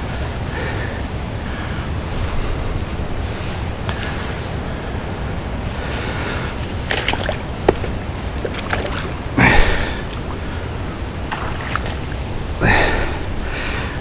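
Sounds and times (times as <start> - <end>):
wind rumble on microphone: 0.0 - 14.0
water splashing in shallows: 6.7 - 10.6, 11.2 - 13.1.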